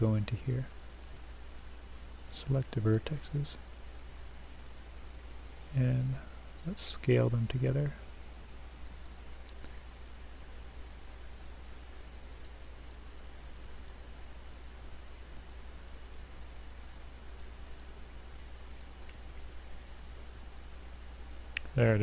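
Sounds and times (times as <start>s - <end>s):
faint hiss: 0.0s - 22.0s
low electrical hum: 0.0s - 22.0s
computer mouse clicking: 0.9s - 2.3s, 3.8s - 4.3s, 12.3s - 13.0s, 13.7s - 15.6s, 16.6s - 20.7s.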